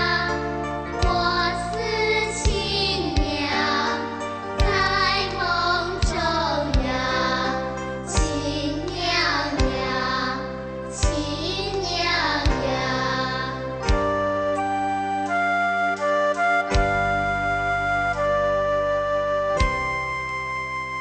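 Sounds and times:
child singing: 0:00.0 - 0:00.4, 0:01.0 - 0:13.9
backing track with steady beat: 0:00.0 - 0:21.0.

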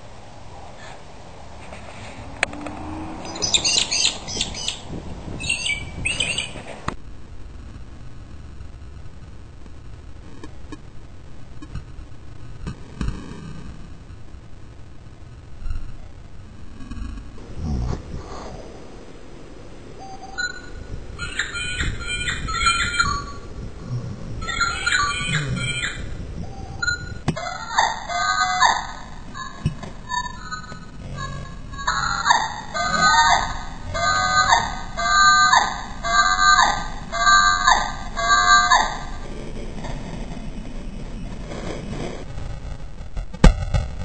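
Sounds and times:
birds chirping rapidly: 0:02.6 - 0:06.8, 0:20.4 - 0:23.5, 0:24.4 - 0:26.2, 0:26.8 - 0:39.0
rapid warbling bird calls: 0:03.1 - 0:06.7, 0:20.4 - 0:23.5, 0:24.4 - 0:26.1.

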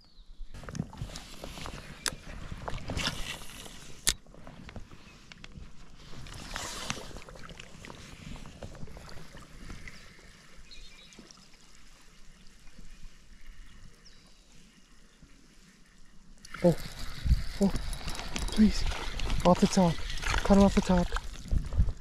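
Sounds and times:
wind rumbling on microphone: 0:16.6 - 0:22.0.

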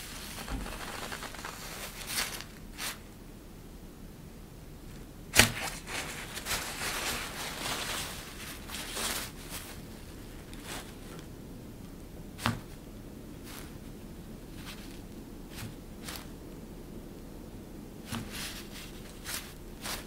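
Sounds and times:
fabric sheet rustling: 0:00.0 - 0:03.1, 0:05.4 - 0:11.3, 0:18.0 - 0:20.0.

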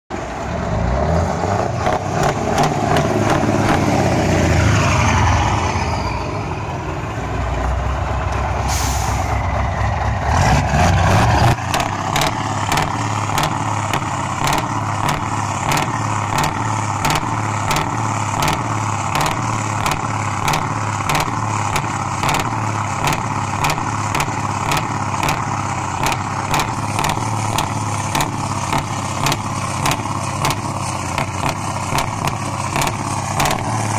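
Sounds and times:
truck driving past: 0:00.1 - 0:33.9
truck engine idling: 0:00.1 - 0:33.9
air hiss: 0:08.7 - 0:09.4.

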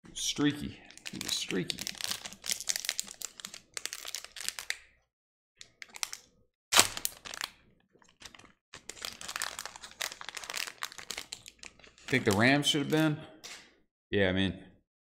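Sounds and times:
wrapper crinkling: 0:00.9 - 0:04.8, 0:05.8 - 0:13.0
wrapper tearing: 0:01.0 - 0:04.8, 0:05.8 - 0:12.8.

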